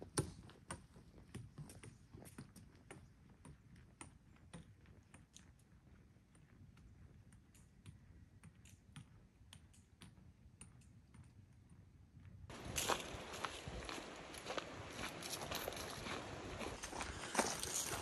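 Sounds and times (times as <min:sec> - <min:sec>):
faint footsteps on dirt track: 0:12.5 - 0:18.0.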